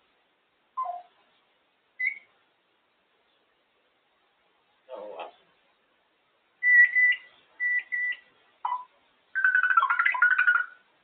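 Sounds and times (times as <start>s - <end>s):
parrot whistling: 0.8s - 1.1s, 2.0s - 2.3s, 6.6s - 10.8s.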